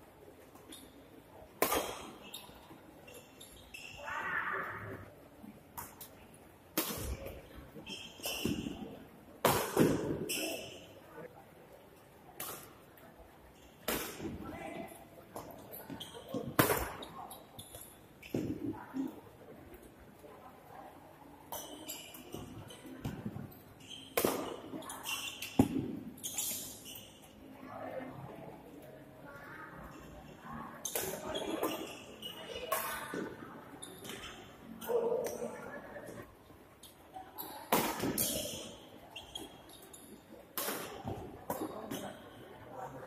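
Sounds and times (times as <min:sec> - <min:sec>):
rackets hitting shuttlecock: 0:01.5 - 0:02.5, 0:05.8 - 0:10.8, 0:13.8 - 0:14.5, 0:15.4 - 0:17.1, 0:21.5 - 0:26.8, 0:37.7 - 0:38.8, 0:40.6 - 0:42.2.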